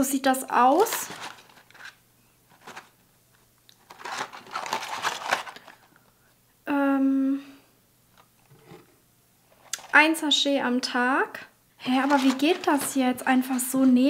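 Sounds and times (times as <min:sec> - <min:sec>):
packaging crinkling: 0:00.6 - 0:03.0, 0:03.7 - 0:06.1, 0:11.9 - 0:13.0.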